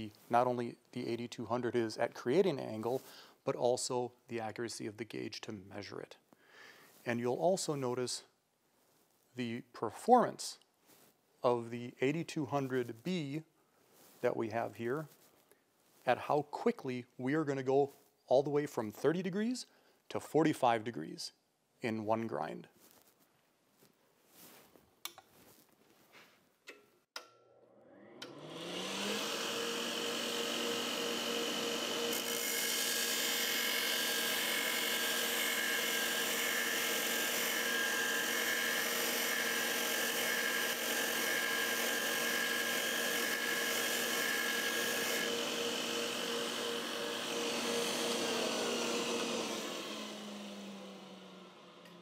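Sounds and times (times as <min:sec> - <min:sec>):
belt grinder motor humming: 0:27.8 - 0:52.0.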